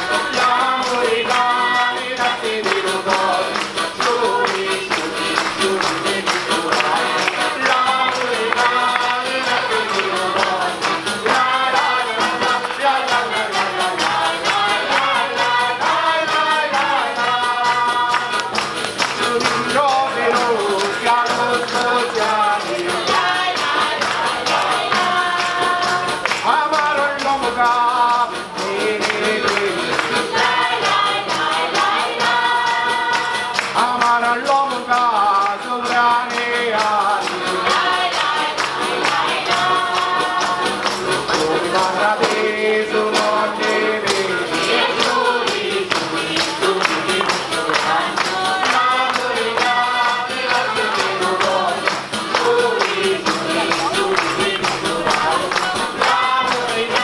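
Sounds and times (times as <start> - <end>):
accordion: 0.0 - 57.0
group singing folk song in chorus: 0.0 - 57.0
tambourines jingling: 0.0 - 57.0.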